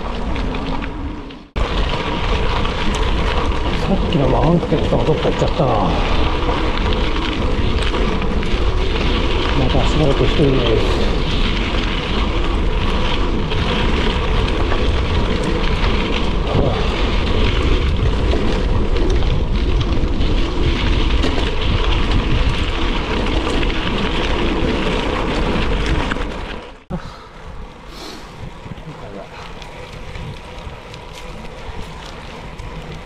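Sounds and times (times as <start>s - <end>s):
tyres crunching on road: 0.0s - 33.0s
wind rumbling on microphone: 0.0s - 33.0s.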